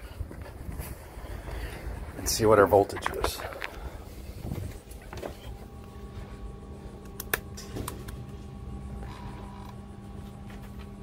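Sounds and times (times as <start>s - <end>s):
faint steady tones: 0.0s - 11.0s
low electrical hum: 0.0s - 11.0s.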